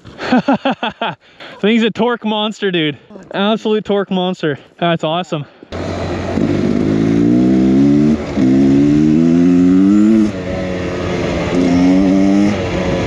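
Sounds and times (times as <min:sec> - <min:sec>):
dirt bike engine revving: 0:05.7 - 0:13.0.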